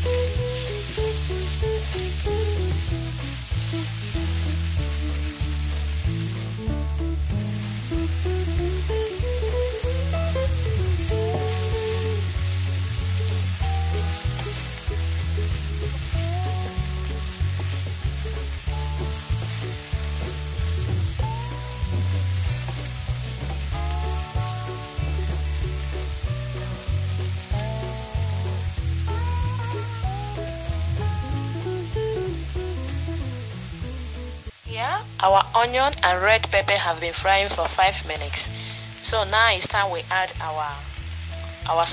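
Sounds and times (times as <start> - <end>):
background music with bass line: 0.0 - 41.9
vegetables sizzling in frying pan: 0.0 - 41.9
wooden spatula stirring: 10.4 - 16.2, 16.8 - 27.9.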